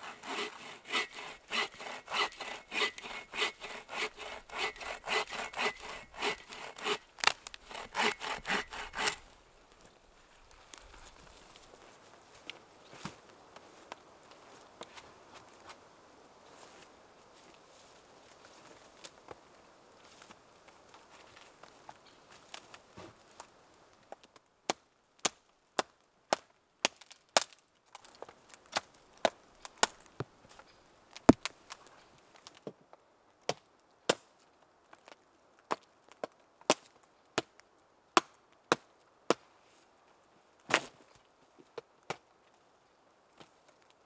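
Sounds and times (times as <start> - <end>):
knife chopping into wood: 0.4 - 9.2.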